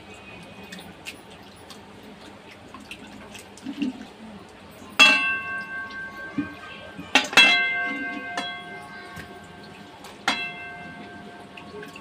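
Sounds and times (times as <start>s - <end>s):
metal plate and pot clinking: 4.9s - 12.0s.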